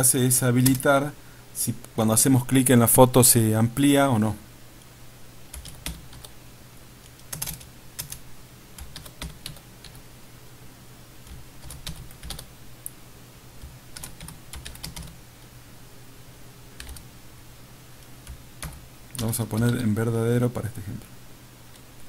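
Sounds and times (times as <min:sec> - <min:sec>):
faint low hum: 0:00.0 - 0:22.0
typing on computer keyboard: 0:05.5 - 0:06.3, 0:07.2 - 0:08.2, 0:08.8 - 0:10.0, 0:11.3 - 0:12.5, 0:13.6 - 0:15.2, 0:16.8 - 0:17.1, 0:18.2 - 0:19.8.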